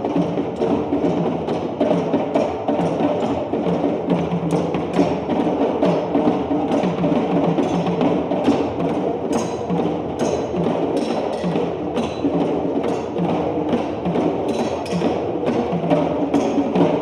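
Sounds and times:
melody over percussion: 0:09.3 - 0:13.8.

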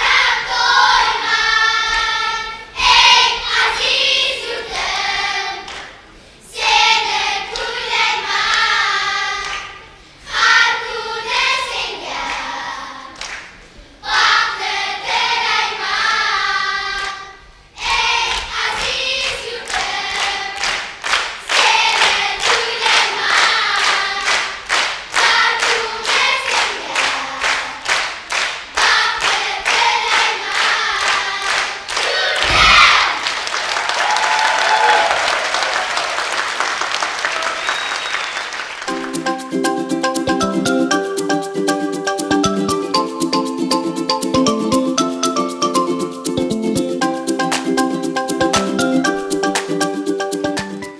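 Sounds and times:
rhythmic clapping: 0:00.0 - 0:06.0, 0:06.6 - 0:09.8, 0:11.7 - 0:13.6, 0:18.1 - 0:50.9
children's choir singing: 0:00.0 - 0:13.3, 0:14.0 - 0:33.4
applause: 0:13.2 - 0:13.6, 0:19.7 - 0:32.5, 0:33.2 - 0:39.2.

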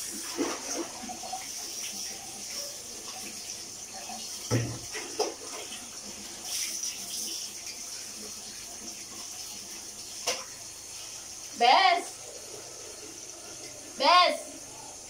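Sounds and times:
water poured over a dog splashing: 0:00.0 - 0:03.4, 0:04.8 - 0:08.3
running water hiss: 0:00.0 - 0:15.0.

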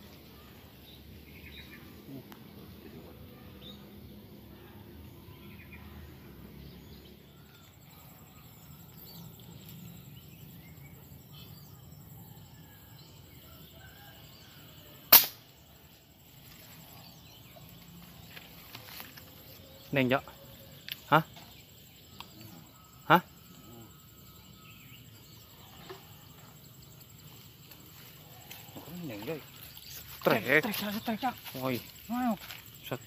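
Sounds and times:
insects buzzing: 0:00.0 - 0:33.0
speargun snap: 0:15.1 - 0:15.4.

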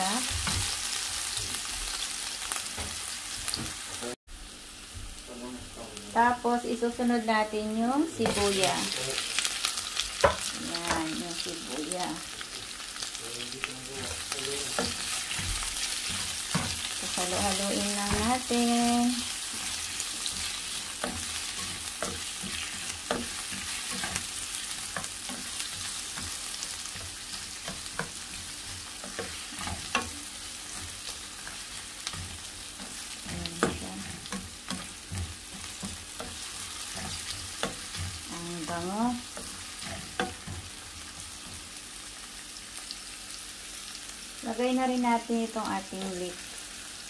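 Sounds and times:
food sizzling in oil: 0:00.0 - 0:47.0
spatula clicking and scraping: 0:13.9 - 0:18.5, 0:19.1 - 0:41.6.

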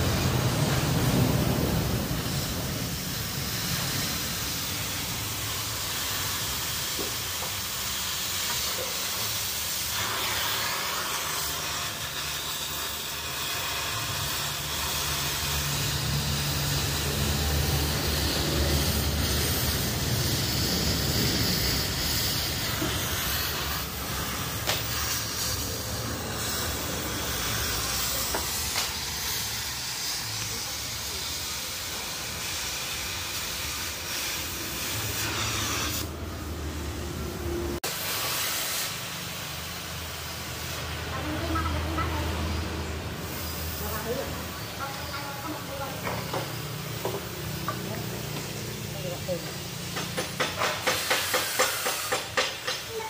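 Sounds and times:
cutting torch hissing: 0:00.0 - 0:53.0.

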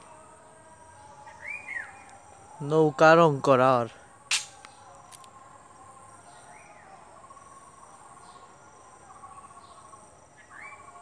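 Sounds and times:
crickets trilling: 0:00.0 - 0:11.0
pulsed insect chirping: 0:04.2 - 0:11.0.

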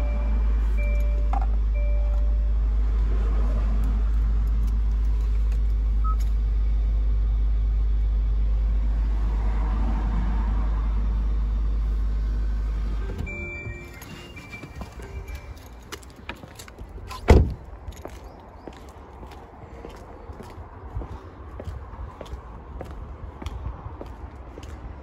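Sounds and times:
electronic chime tones: 0:13.2 - 0:15.7.

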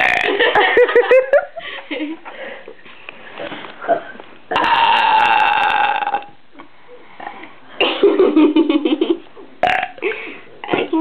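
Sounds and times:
girl burping: 0:00.0 - 0:00.4, 0:04.5 - 0:06.4, 0:09.6 - 0:10.0.

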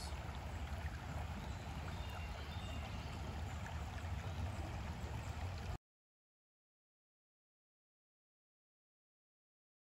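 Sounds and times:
stream babbling over stones: 0:00.0 - 0:05.8.

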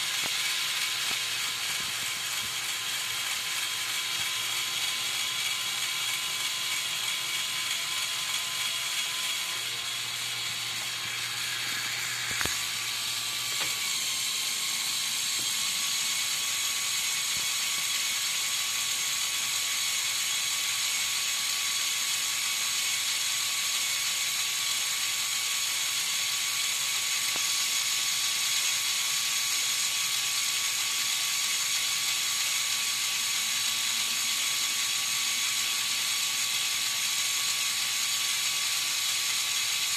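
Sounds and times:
toy motor and gears whirring: 0:00.0 - 0:39.9
click: 0:12.3 - 0:12.6.

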